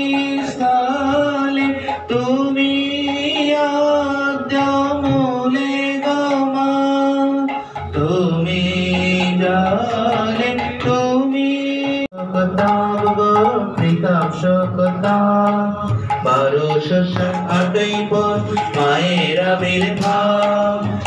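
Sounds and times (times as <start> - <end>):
harmonium chords: 0.0 - 21.0
man singing a hymn: 0.0 - 21.0
barrel drum: 11.9 - 21.0.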